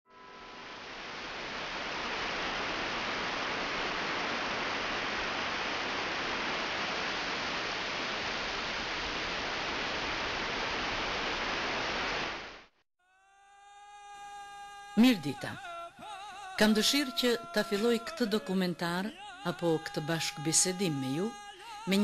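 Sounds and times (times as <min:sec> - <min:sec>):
river rushing over rocks: 0:00.4 - 0:12.6.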